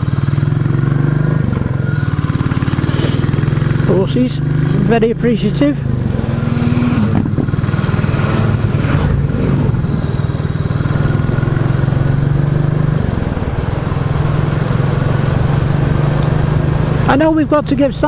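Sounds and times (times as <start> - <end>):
motorcycle engine cruising: 0.0 - 18.0
wind noise: 6.0 - 11.4.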